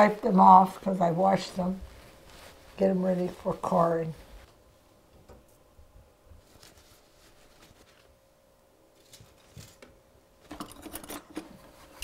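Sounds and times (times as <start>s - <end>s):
paper towel rustling: 0.0s - 4.8s, 6.2s - 9.8s
faint steady hum: 0.0s - 12.0s.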